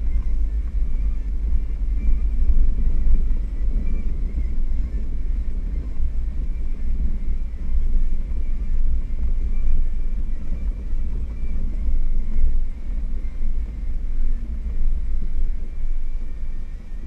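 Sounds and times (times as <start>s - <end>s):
engine and drivetrain rumble: 0.0s - 17.0s
faint high whine: 0.0s - 17.0s.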